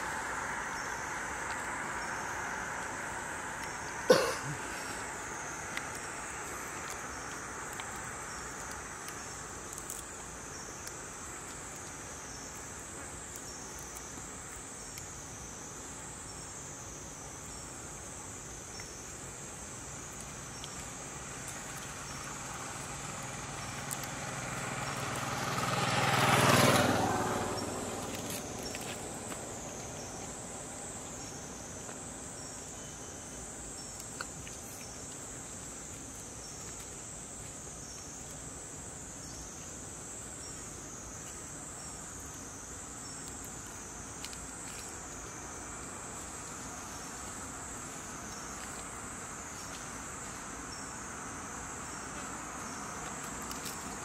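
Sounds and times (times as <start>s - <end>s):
vehicle driving past: 0.0s - 4.1s, 21.9s - 31.0s
high insect chorus: 0.0s - 54.0s.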